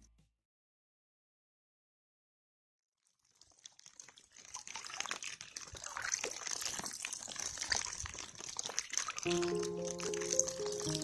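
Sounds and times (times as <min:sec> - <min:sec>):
rain on lake: 0:07.6 - 0:11.0.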